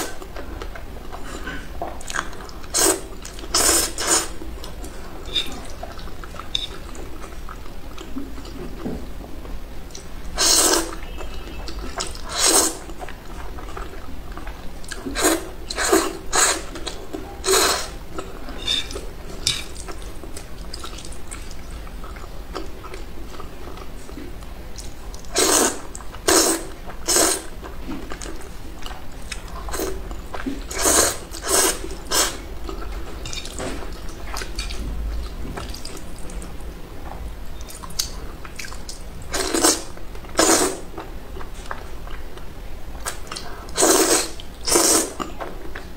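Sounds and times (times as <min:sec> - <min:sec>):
person chewing: 0:00.0 - 0:08.9, 0:09.9 - 0:36.5, 0:37.6 - 0:45.8
low steady hum: 0:00.0 - 0:45.9
person slurping noodles: 0:02.7 - 0:04.4, 0:10.4 - 0:11.0, 0:12.0 - 0:12.8, 0:15.0 - 0:16.7, 0:17.4 - 0:18.0, 0:25.3 - 0:27.5, 0:30.6 - 0:32.4, 0:39.3 - 0:40.8, 0:43.8 - 0:45.2.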